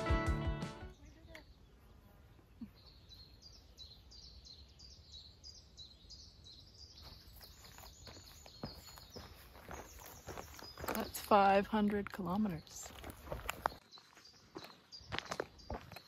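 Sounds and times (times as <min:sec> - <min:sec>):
bird chirping: 0:00.9 - 0:16.0
footsteps on a trail: 0:06.9 - 0:16.0.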